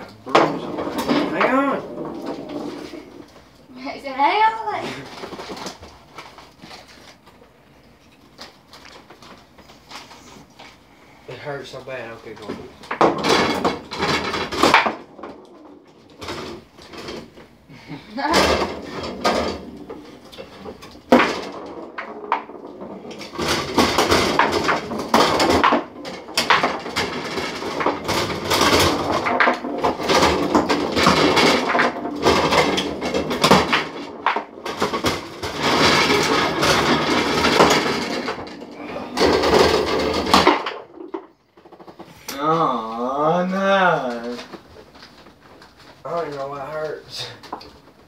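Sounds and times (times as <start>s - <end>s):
foosball players striking ball: 0.0s - 3.5s, 12.3s - 17.6s, 18.3s - 42.5s
rapid clacking of foosball rods: 0.0s - 3.6s, 4.9s - 7.4s, 11.9s - 17.5s, 18.2s - 42.4s, 44.1s - 48.0s.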